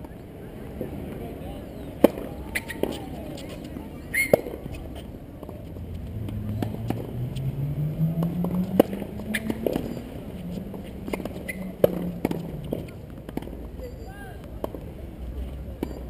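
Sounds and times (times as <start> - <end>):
vehicle engine speeding up: 5.7 - 12.6
tennis racket striking ball: 8.2 - 9.9, 10.7 - 13.7.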